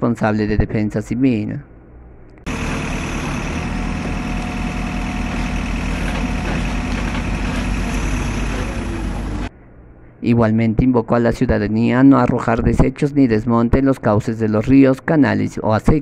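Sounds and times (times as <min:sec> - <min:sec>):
backhoe diesel engine running: 0:02.5 - 0:09.5.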